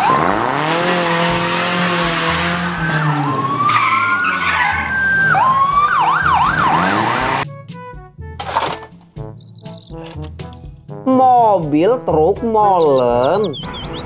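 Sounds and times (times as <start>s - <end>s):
car engine: 0.0s - 7.5s
police siren wailing: 0.0s - 7.5s.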